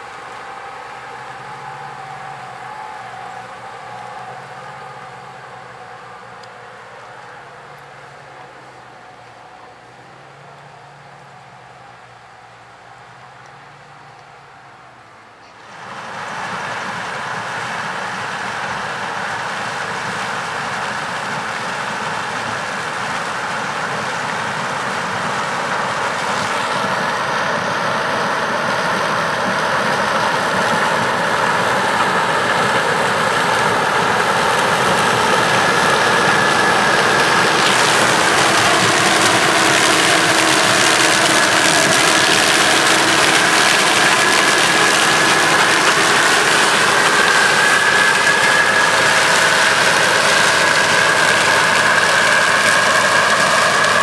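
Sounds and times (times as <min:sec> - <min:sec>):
combine harvester droning: 0:00.0 - 0:14.5, 0:15.5 - 0:54.0
high machine whine: 0:16.0 - 0:54.0.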